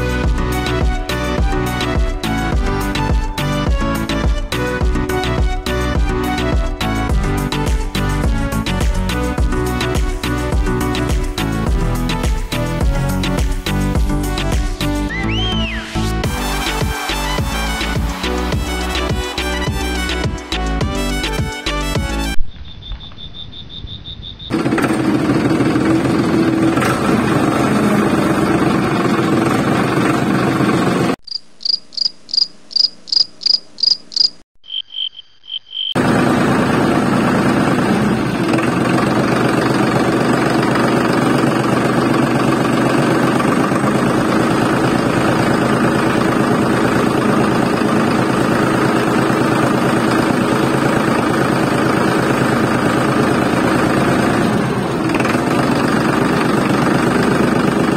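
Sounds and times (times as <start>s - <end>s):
small tractor engine running: 0.0s - 15.5s, 24.5s - 31.2s, 36.0s - 57.9s
high chirps: 22.4s - 24.5s, 31.2s - 36.0s.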